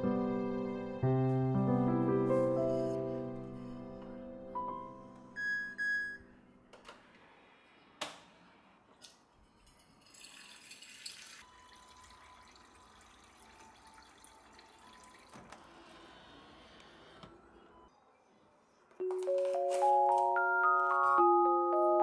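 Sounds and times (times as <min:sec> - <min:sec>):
water splashing into metal jug: 0:10.0 - 0:15.3.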